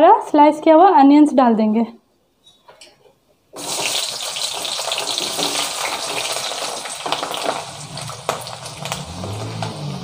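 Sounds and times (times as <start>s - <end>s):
onions sizzling in hot oil: 3.6s - 10.0s.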